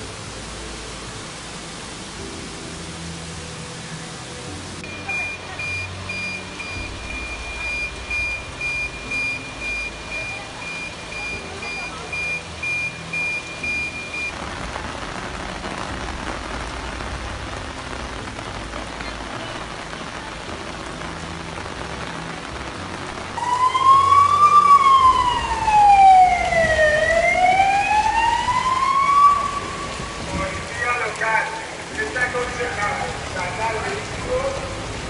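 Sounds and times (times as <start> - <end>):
steady rain: 0.0 - 35.0
short electronic beeps: 4.8 - 14.3
police car siren wailing: 23.4 - 30.2.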